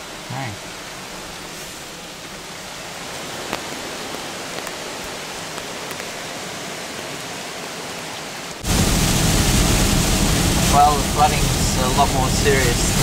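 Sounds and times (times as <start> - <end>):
rain falling on water: 0.0 - 13.0
loud low rumbling: 8.6 - 13.0.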